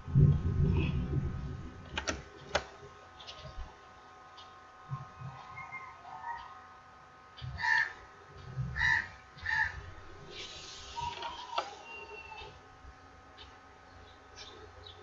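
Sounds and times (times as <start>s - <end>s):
steady faint hum: 0.0s - 15.0s
bird harsh calls: 7.4s - 8.0s, 8.8s - 12.6s.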